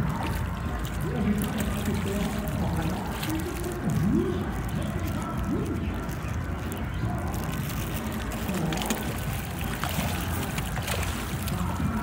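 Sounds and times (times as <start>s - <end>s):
fish splashing at water surface: 0.0s - 12.0s
low steady rumble: 0.0s - 12.0s.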